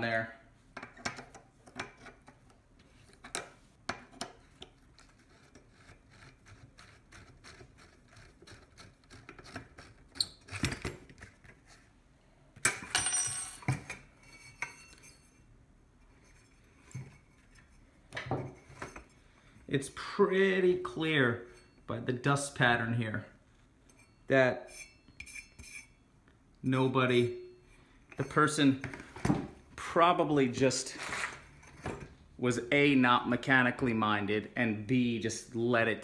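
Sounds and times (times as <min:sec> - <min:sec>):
metal scraping: 0:23.8 - 0:26.0.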